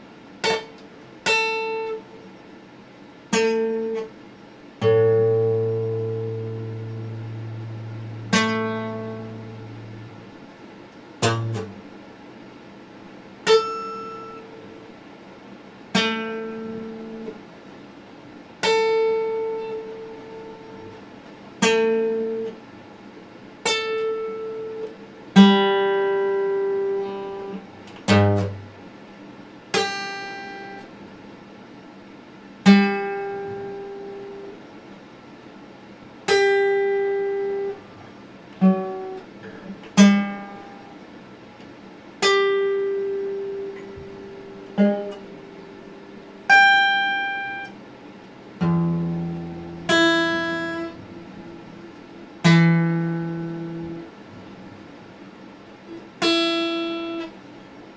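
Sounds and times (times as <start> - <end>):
acoustic guitar plucked notes: 0.4 - 2.1, 3.3 - 4.2, 4.8 - 10.4, 11.2 - 11.9, 13.4 - 14.8, 15.9 - 17.4, 18.6 - 21.0, 21.6 - 22.6, 23.6 - 28.9, 29.7 - 31.0, 32.6 - 34.6, 36.2 - 38.0, 38.6 - 41.1, 42.2 - 47.8, 48.5 - 54.6, 55.9 - 57.4.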